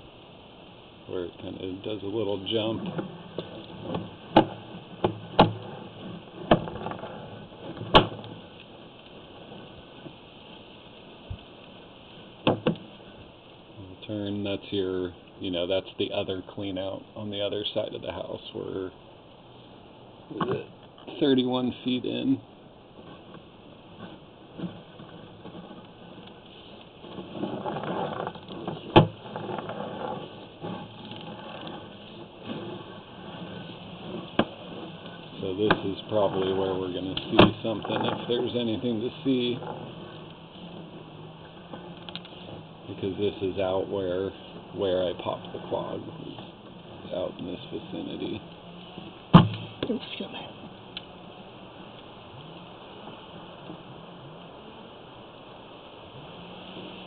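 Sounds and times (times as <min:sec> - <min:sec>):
cable sliding mechanical rumble: 0:00.0 - 0:57.0
sharp knock: 0:49.3 - 0:49.7.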